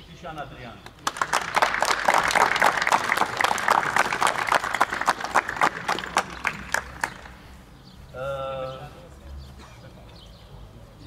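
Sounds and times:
crowd applauding: 1.0 - 7.4.

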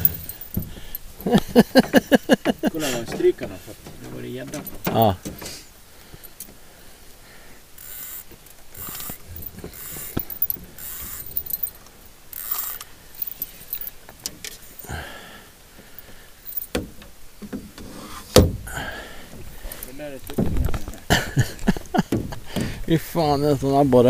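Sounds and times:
fishing gear rustling and jingling: 0.0 - 6.5, 7.7 - 16.7, 18.8 - 22.0.

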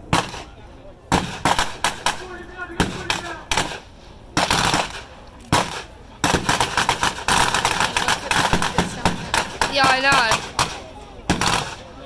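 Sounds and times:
machine gun firing bursts: 5.6 - 11.8.

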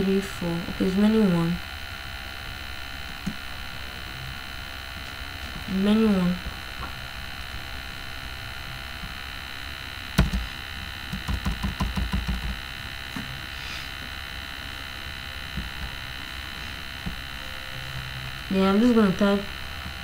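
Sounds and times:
electrical mains hum: 0.0 - 20.0
keyboard key presses: 10.2 - 10.5.

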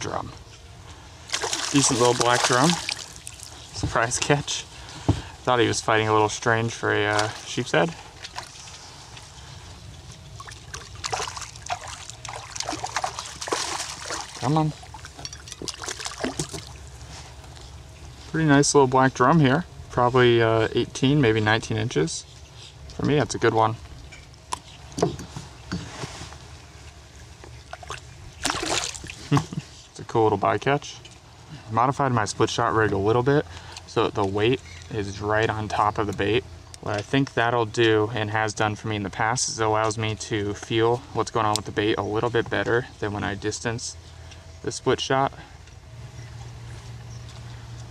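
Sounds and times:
fish splashing at water surface: 1.3 - 3.7, 10.4 - 16.9, 27.7 - 29.3.

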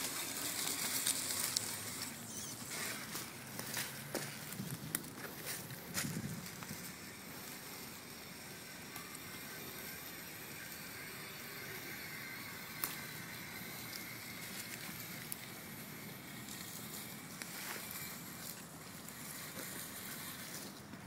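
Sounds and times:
toy car motor and gears whining: 0.0 - 21.0.

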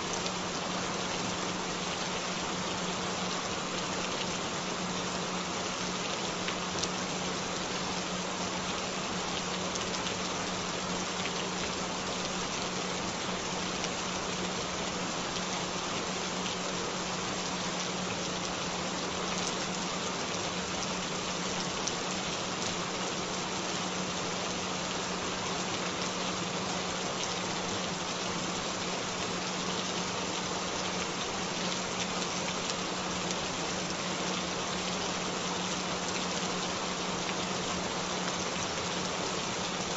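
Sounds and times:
rain drops ticking: 0.0 - 39.9
steady rain: 0.0 - 39.9.

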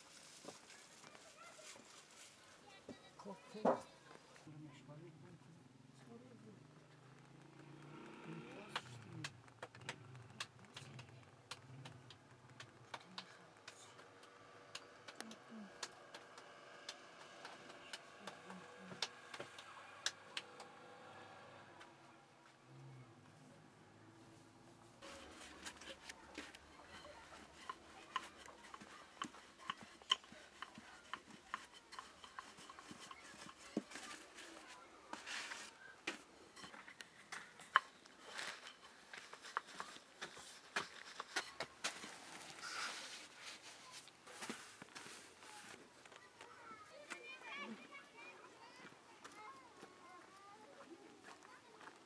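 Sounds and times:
rolling pin clicking on dough: 25.1 - 34.7.

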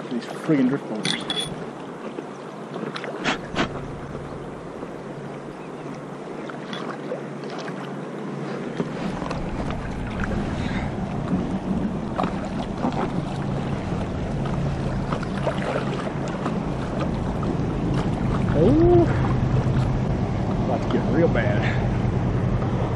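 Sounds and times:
paddle stroke splashes: 0.0 - 22.9
river water rushing and splashing: 0.0 - 22.9
wind rumble on microphone: 3.2 - 6.4, 8.8 - 22.9.

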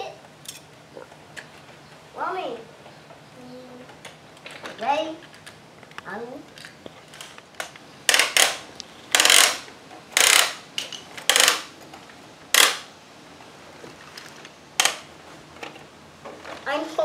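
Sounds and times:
toy winch clicking: 8.1 - 10.6, 11.2 - 11.7, 12.5 - 12.9.

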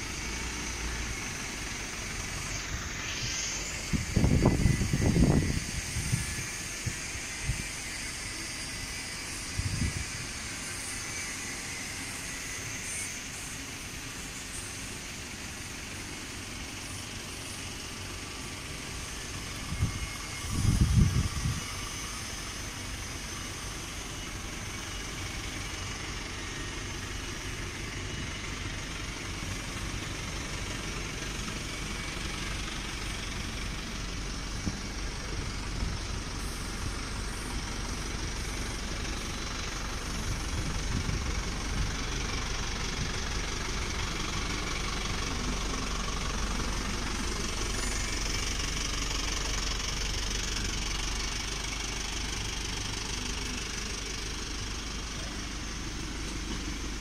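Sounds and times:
generator diesel engine running: 0.0 - 57.0.

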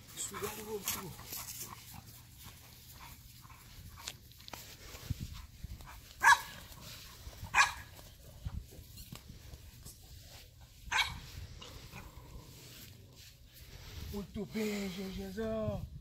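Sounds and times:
dog barking: 6.2 - 6.6, 7.5 - 7.9, 10.9 - 11.2.

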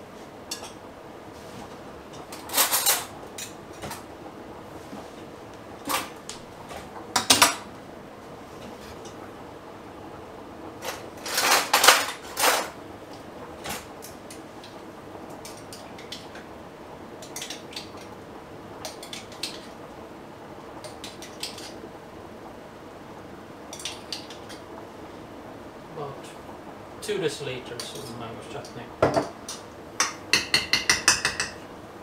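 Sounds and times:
cutlery clattering in a drawer: 10.9 - 12.7.

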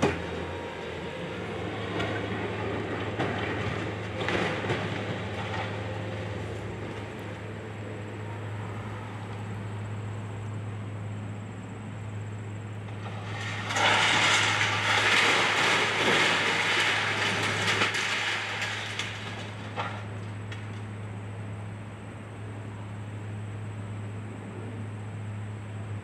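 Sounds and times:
excavator engine hum: 0.0 - 26.0
debris crashing and clattering: 1.9 - 7.2, 12.8 - 20.8.

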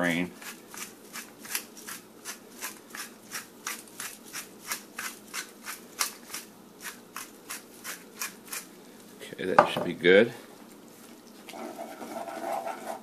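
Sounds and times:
pepper mill grinding: 0.4 - 8.7.

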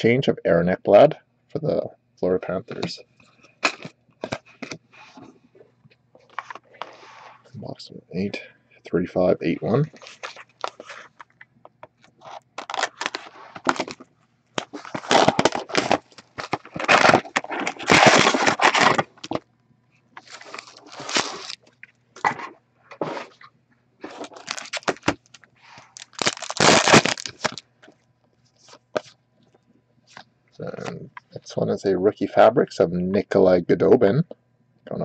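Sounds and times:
plastic crinkling and tearing: 10.0 - 11.2, 12.2 - 14.0, 14.6 - 19.4, 20.2 - 22.4, 24.0 - 27.6
foil pack tearing open: 12.6 - 14.0, 14.6 - 19.4, 20.3 - 21.6, 24.1 - 27.6.

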